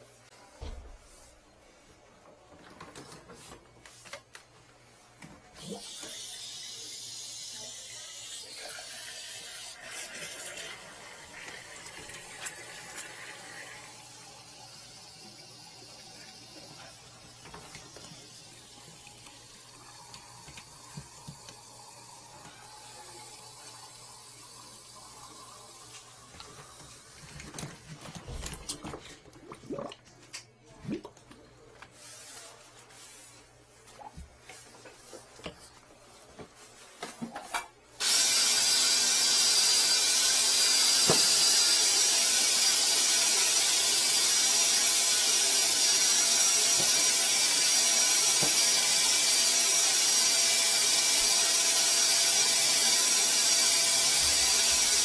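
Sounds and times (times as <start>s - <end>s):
water running: 5.5s - 31.4s, 38.0s - 55.0s.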